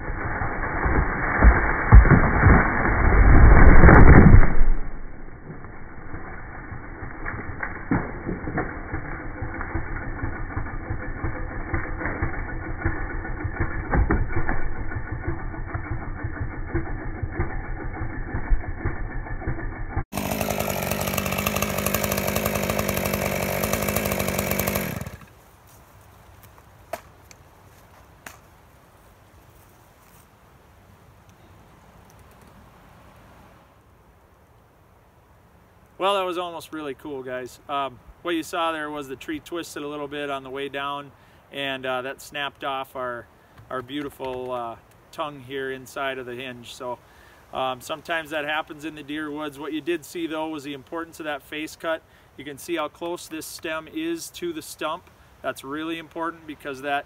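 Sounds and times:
tree cracking and crashing down: 0.0s - 16.0s, 20.2s - 25.3s
chainsaw idling: 5.6s - 25.3s.

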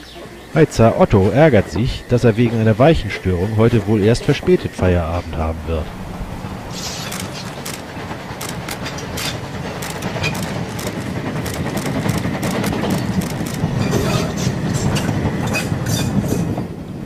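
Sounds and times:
steady train rumble: 0.0s - 17.0s
steam locomotive exhaust beats: 0.0s - 17.0s
wheel clicks over rail joints: 6.8s - 16.6s.

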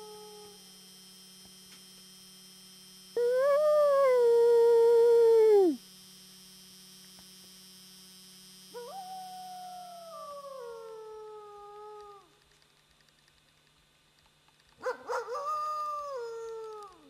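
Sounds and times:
wolf howling: 3.2s - 5.8s, 8.8s - 12.4s, 15.0s - 17.0s.

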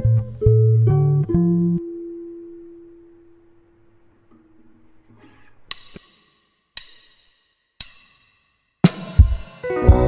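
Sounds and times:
background music held note: 9.5s - 10.0s.

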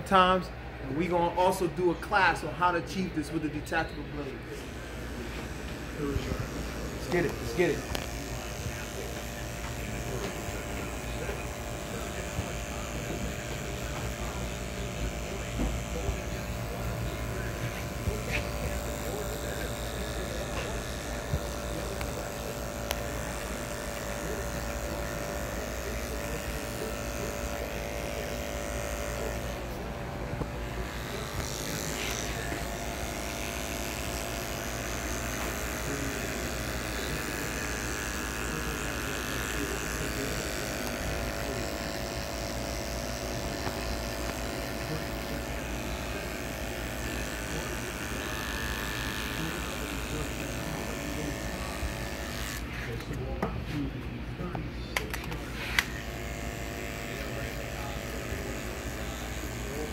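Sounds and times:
electric hair clipper humming: 3.7s - 59.9s.

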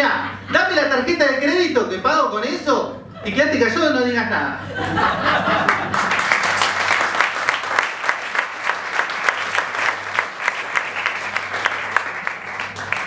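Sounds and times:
audience applauding: 5.6s - 13.0s.

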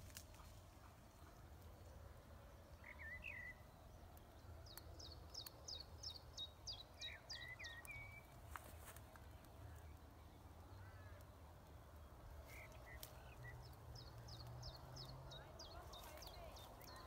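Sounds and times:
small bird chirps: 4.6s - 10.0s, 12.4s - 17.0s.

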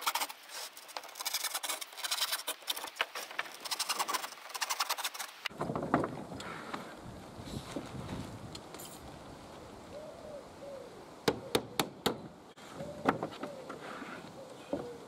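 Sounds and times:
pigeon cooing: 9.9s - 11.8s, 12.7s - 15.0s.

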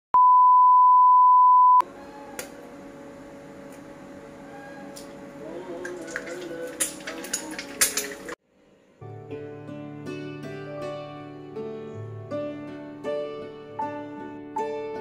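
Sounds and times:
egg cracked on wok rim: 5.8s - 8.3s.

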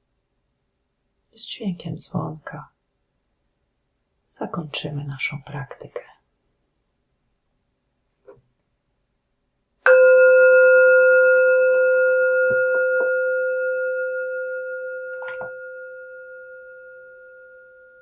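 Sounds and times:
meditation bell ringing: 9.8s - 18.0s.

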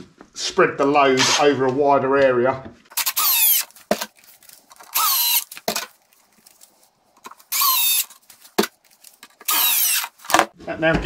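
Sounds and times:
power drill driving screws into wood: 3.0s - 4.1s, 4.9s - 5.9s, 7.5s - 8.1s, 9.4s - 10.5s.

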